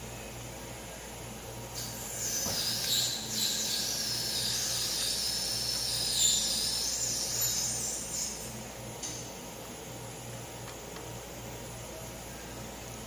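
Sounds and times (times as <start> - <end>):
high squealing ring: 1.8 - 8.6.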